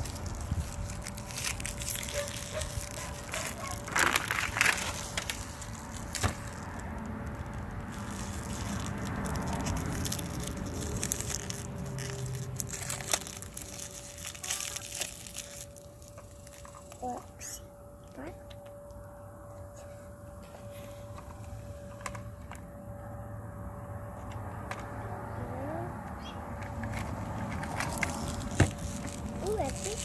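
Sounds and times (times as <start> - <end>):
plastic wrappers crinkling: 0.0 - 17.6, 26.7 - 30.0.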